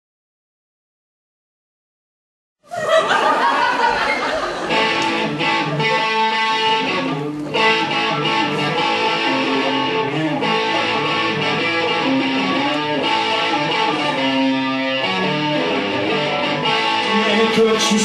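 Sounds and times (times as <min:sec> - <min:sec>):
electric guitar playing: 0:03.8 - 0:18.0.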